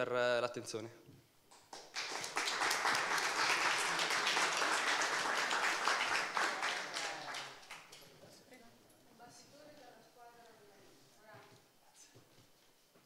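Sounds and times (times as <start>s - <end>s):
audience applauding: 1.6s - 8.0s.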